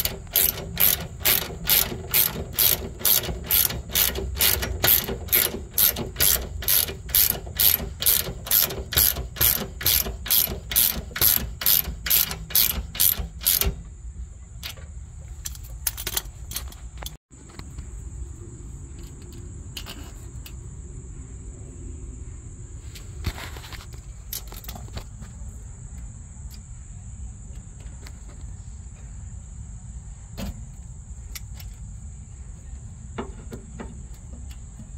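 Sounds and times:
hand ratchet clicking: 0.0s - 13.8s, 15.4s - 17.2s.

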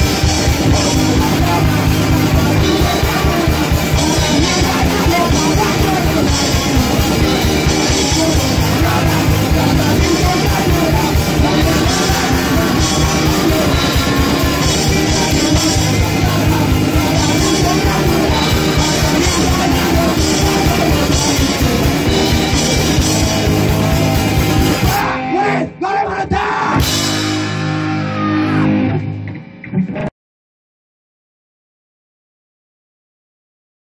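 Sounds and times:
punk rock band: 0.0s - 30.1s
person yelling vocals: 0.7s - 22.0s, 22.8s - 26.9s, 27.8s - 28.8s.

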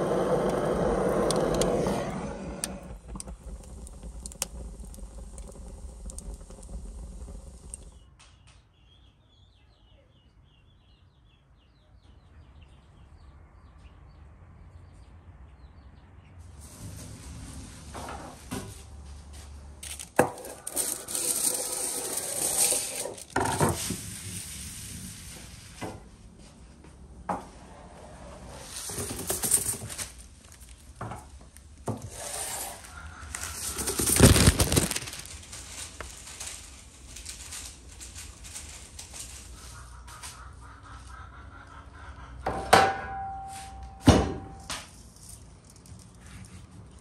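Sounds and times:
rubbing and scraping: 0.0s - 8.0s, 19.8s - 26.1s, 31.9s - 40.5s.

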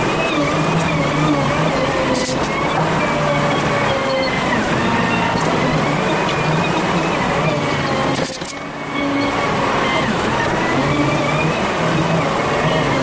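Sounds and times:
diesel engine working under load: 0.0s - 13.0s.

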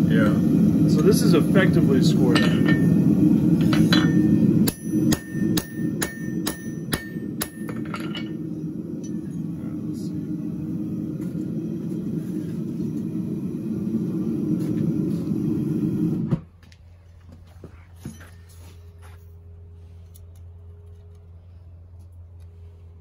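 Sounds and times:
hammer ringing on steel anvil: 3.7s - 8.4s
steady low roar: 8.2s - 16.3s.

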